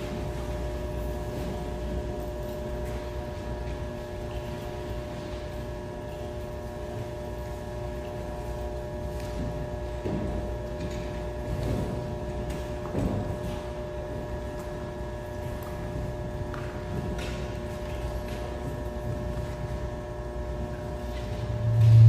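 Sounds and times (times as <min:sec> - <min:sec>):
steady hum: 0:00.0 - 0:22.0
low rumble: 0:21.4 - 0:22.0.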